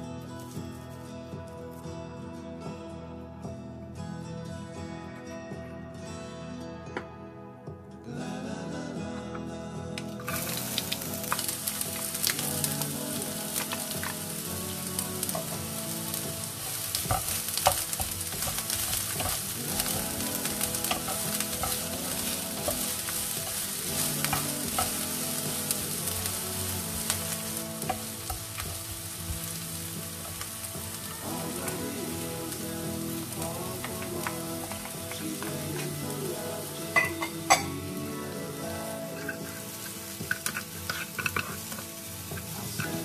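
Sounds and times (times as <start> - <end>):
onions sizzling in hot oil: 10.1 - 43.0.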